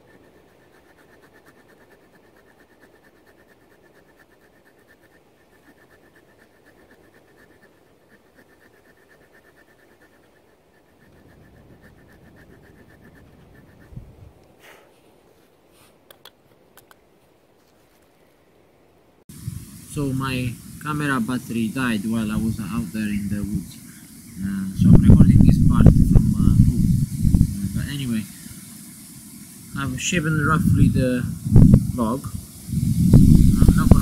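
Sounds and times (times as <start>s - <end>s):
sharp clicks: 16.1s - 17.0s.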